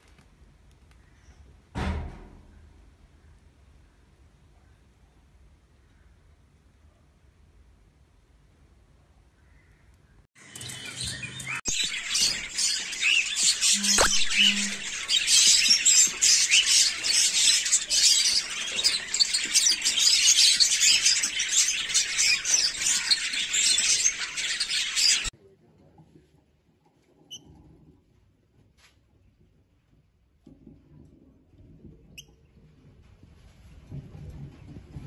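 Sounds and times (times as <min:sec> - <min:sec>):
lovebirds chirping: 0:10.4 - 0:25.3.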